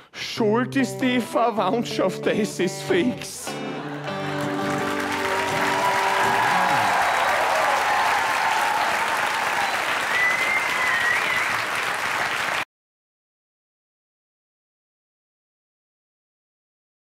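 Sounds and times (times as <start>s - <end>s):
audience applauding and cheering: 3.6s - 12.7s
high whistle from crowd: 5.5s - 11.9s.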